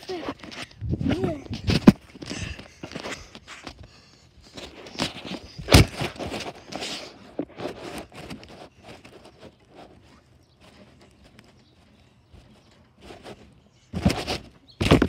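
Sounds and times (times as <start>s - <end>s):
footsteps: 0.0s - 15.0s
phone scuffing and rubbing: 4.5s - 11.6s, 12.6s - 15.0s.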